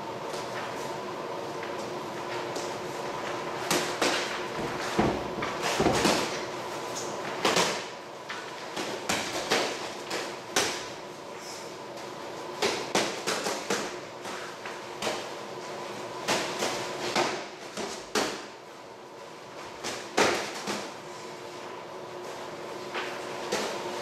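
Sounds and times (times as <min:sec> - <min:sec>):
boxing gloves thudding: 0:16.2 - 0:18.5, 0:19.8 - 0:20.9.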